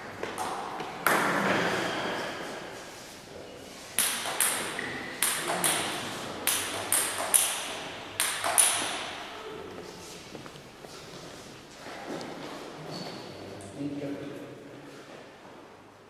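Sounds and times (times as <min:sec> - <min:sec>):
table tennis ball bouncing: 0:00.2 - 0:02.1, 0:04.0 - 0:09.2.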